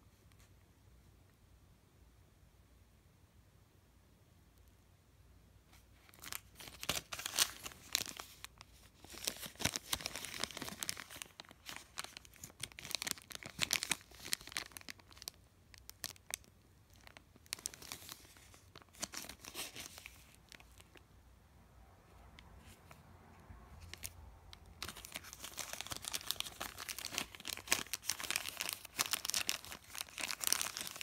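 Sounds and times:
plastic bag crinkling: 0:06.0 - 0:21.0, 0:23.8 - 0:31.0.

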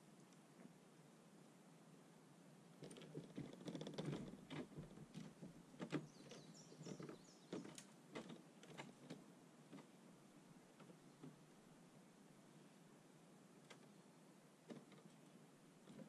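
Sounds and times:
metal awning frame knocks and clicks: 0:02.8 - 0:10.0.

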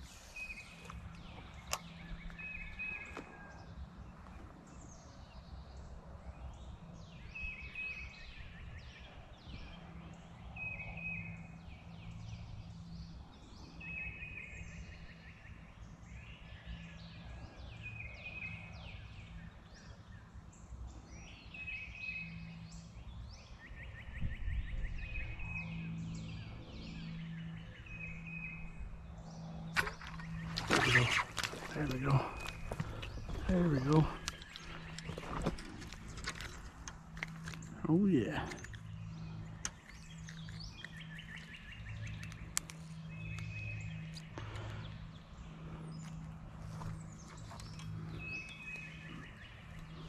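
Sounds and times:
songbirds singing: 0:00.0 - 0:50.0
bird trilling phrase: 0:30.5 - 0:32.8.

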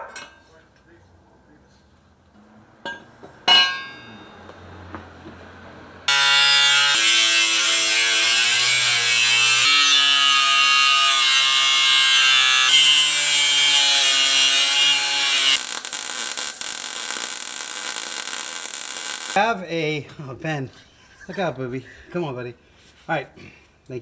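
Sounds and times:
angle grinder cutting steel: 0:06.1 - 0:19.4
welding arc crackling hiss: 0:06.1 - 0:19.4.

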